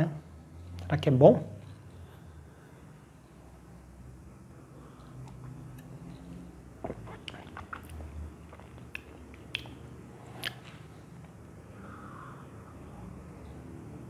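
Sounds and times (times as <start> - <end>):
faint low room hum: 0.0 - 14.0
lip smacks and tongue clicks: 6.8 - 11.4.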